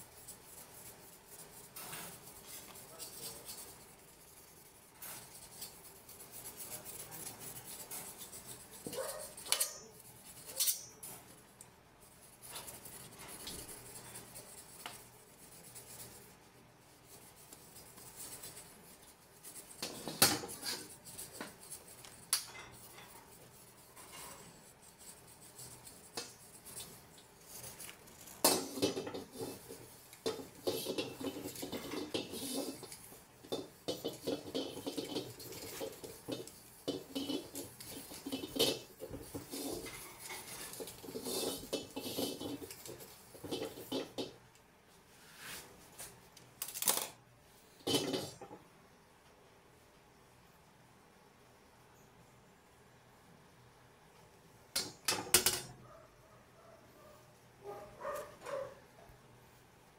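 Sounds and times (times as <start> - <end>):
pad rubbing inside wok: 0.0 - 46.3, 47.7 - 48.6
metal wok knocks and clanks: 19.8 - 20.8, 28.4 - 44.4, 47.8 - 48.6, 54.7 - 55.7.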